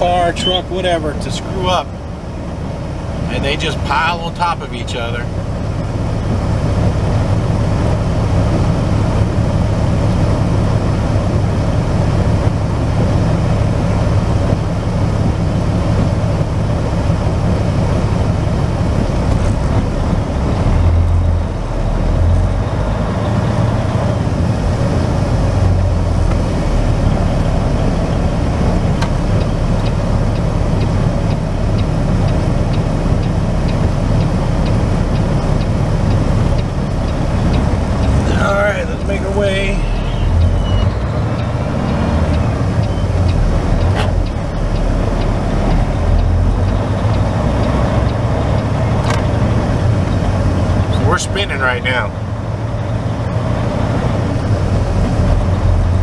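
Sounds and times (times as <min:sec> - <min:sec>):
road and cab noise: 0:00.0 - 0:56.0
truck diesel engine droning: 0:00.0 - 0:56.0
light regular ticking: 0:25.5 - 0:56.0.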